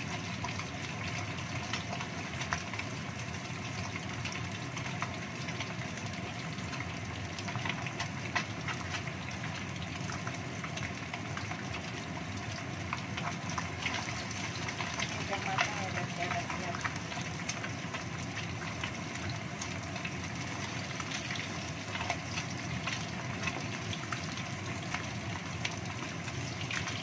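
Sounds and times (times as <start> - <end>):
fish sizzling in oil: 0.0 - 27.0
small pops and crackles: 6.6 - 9.6.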